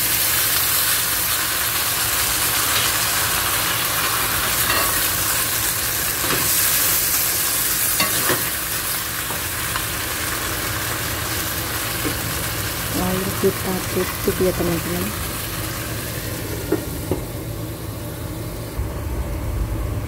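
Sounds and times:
fish sizzling in a wok: 0.0s - 18.8s.

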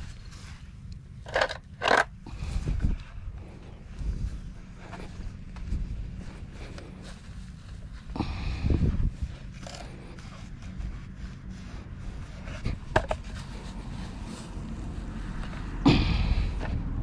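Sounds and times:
low steady rumble: 0.0s - 17.0s
handling knock and rustle: 12.4s - 13.6s.

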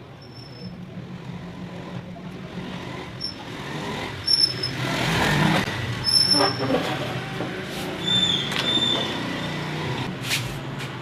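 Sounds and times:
vehicle passing: 1.1s - 10.9s
high squeaks: 4.2s - 4.9s, 6.0s - 7.0s, 8.0s - 9.6s.

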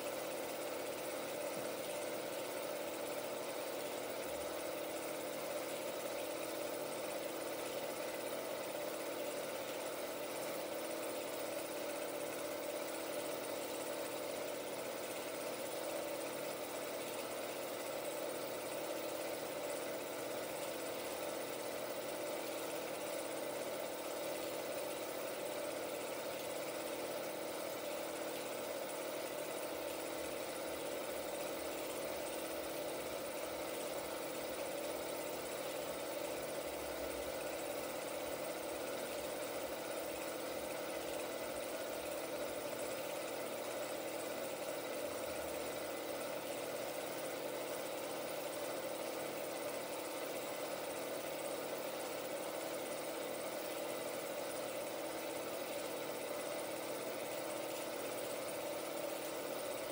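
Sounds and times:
film projector humming: 0.0s - 59.9s.

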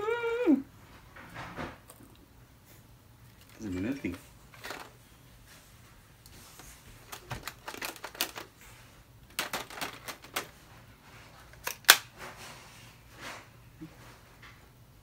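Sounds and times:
plastic toy clicking and tapping: 7.1s - 8.5s, 9.3s - 10.5s.

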